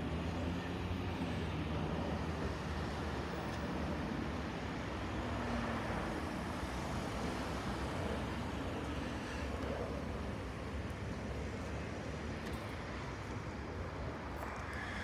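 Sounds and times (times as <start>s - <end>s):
jet plane flying over: 5.3s - 15.0s.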